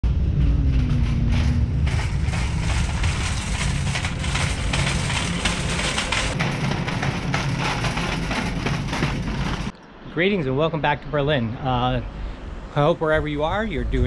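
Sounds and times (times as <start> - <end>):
low rumble: 0.0 - 9.7, 10.7 - 14.0.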